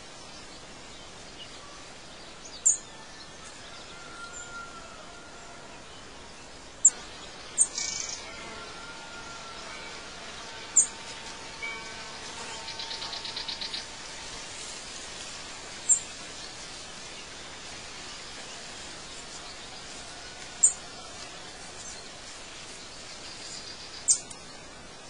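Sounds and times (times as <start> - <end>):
outdoor background hiss: 0.0 - 25.0
birds chirping: 5.2 - 25.0.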